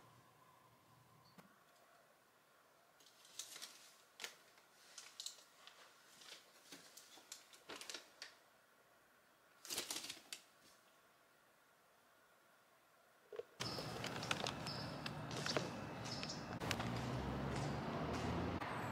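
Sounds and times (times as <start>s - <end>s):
plastic bag rustling: 3.0s - 8.4s, 9.6s - 10.8s, 13.6s - 15.8s.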